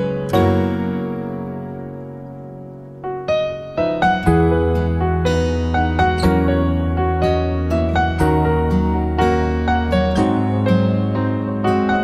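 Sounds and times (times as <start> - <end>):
gentle piano music: 0.0 - 12.0.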